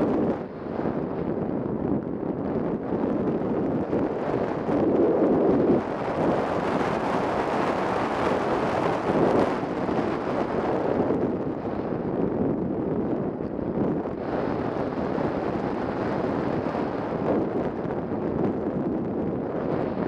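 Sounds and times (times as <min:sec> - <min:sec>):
wind rushing over camera: 0:00.0 - 0:20.0.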